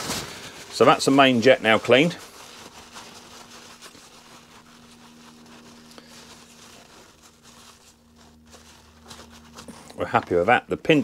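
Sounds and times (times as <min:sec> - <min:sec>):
paper rustling: 0:00.0 - 0:11.0
steady low hum: 0:00.0 - 0:11.0.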